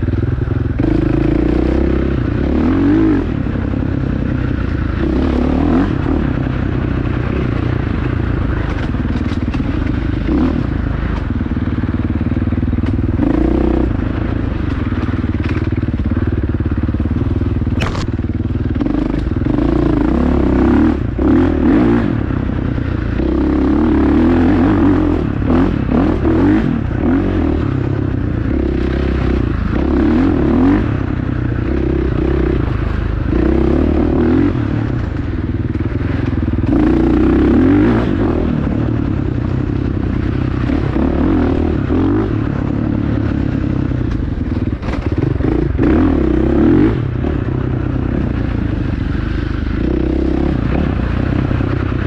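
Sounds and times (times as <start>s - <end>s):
dirt bike engine revving: 0.0s - 11.3s, 12.1s - 15.8s, 16.8s - 52.0s
bike clattering over rough trail: 3.4s - 33.8s, 34.4s - 52.0s
sharp click: 17.8s - 18.2s.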